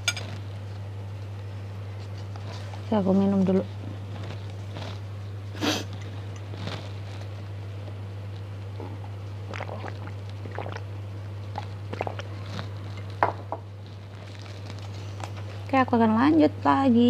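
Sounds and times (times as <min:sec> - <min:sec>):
steady low hum: 0:00.0 - 0:17.0
person drinking gulping: 0:08.7 - 0:12.8.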